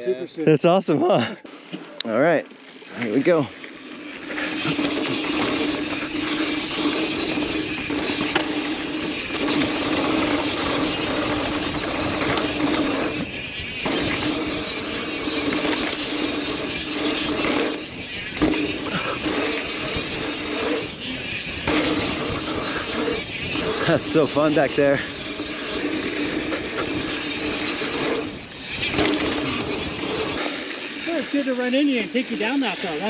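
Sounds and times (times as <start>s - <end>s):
bike freehub buzzing: 0.0s - 33.0s
bike frame rattle: 1.3s - 33.0s
tyre and wind noise: 4.4s - 30.6s.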